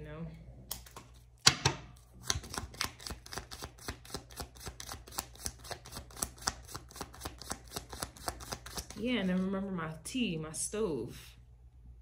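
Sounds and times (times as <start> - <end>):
cards being shuffled by hand: 2.2 - 9.4.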